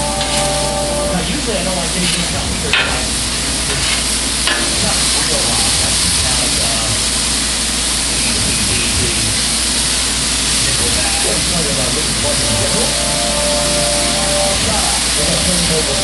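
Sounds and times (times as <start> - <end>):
burger patties sizzling on griddle: 0.0 - 16.0
metal spatula clacking on steel: 3.7 - 4.8.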